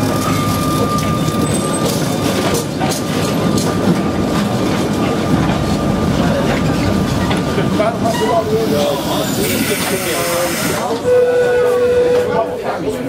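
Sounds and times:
wheels clicking over rail joints: 0.0s - 8.3s
tram rolling past: 0.0s - 13.0s.

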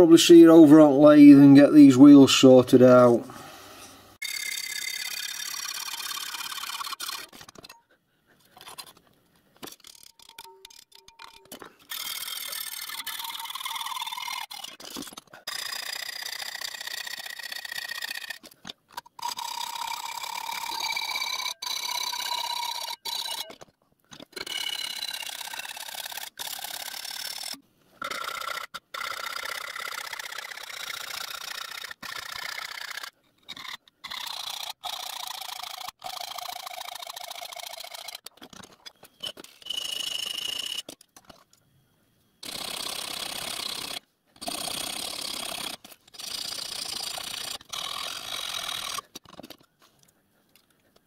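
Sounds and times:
hacksaw cutting metal: 9.6s - 41.0s, 42.4s - 49.6s
high ringing blade tones: 10.1s - 12.2s.

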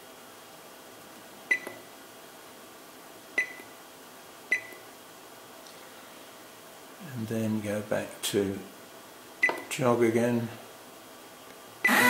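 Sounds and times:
keypress clicks with high beeps: 1.5s - 1.8s, 3.4s - 3.7s, 4.5s - 4.8s, 9.4s - 9.7s.

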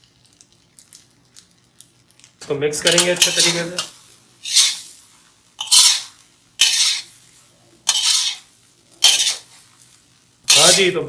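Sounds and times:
metal spatula scraping wok: 2.8s - 11.0s.

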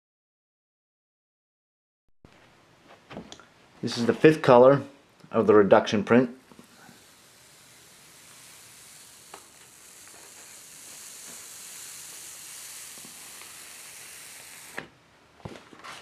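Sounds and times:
paper peeling off inked block: 6.5s - 14.9s.

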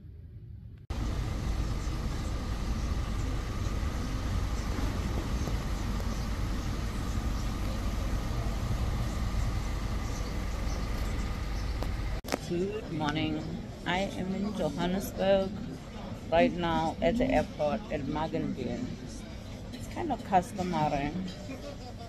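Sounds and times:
faint hum: 0.0s - 22.0s
loud rumble: 0.9s - 12.2s.

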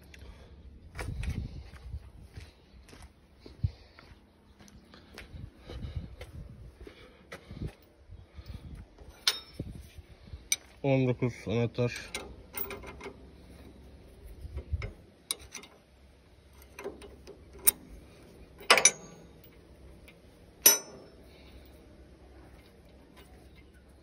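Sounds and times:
spanner clicking and clanking on metal: 9.0s - 9.7s, 11.8s - 13.8s, 14.5s - 21.7s.

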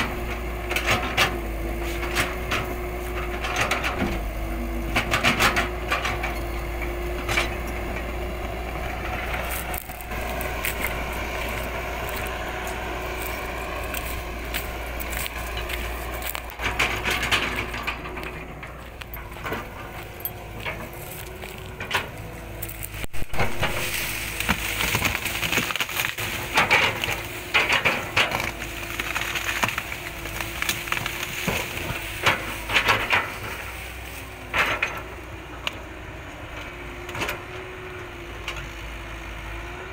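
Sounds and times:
excavator engine running: 0.0s - 39.9s
wood cracking and snapping: 9.3s - 33.6s.

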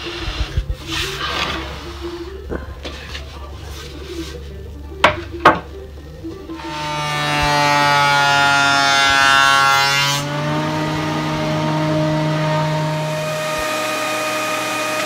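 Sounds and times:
wood shaper whining: 0.0s - 15.0s
cutter milling wood: 6.6s - 15.0s.

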